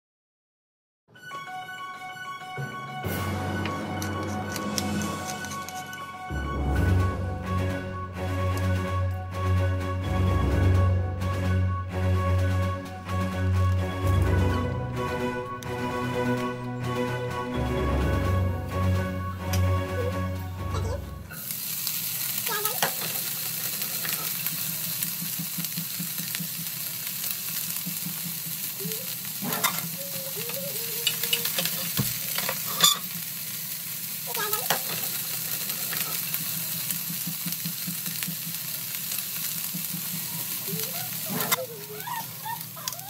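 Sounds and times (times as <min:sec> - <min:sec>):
vegetables sizzling in oil: 0:18.8 - 0:43.0.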